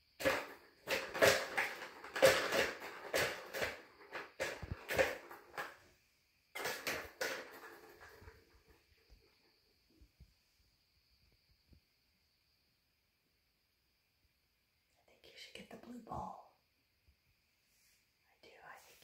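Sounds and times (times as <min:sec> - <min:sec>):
plastic balls rattling in toy: 0:00.2 - 0:05.9, 0:06.5 - 0:08.8.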